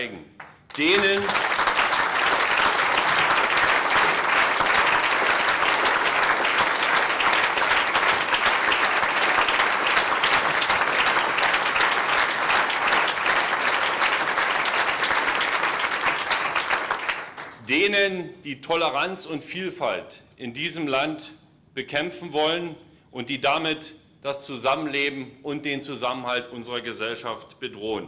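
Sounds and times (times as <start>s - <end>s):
audience applauding: 0.4s - 17.6s.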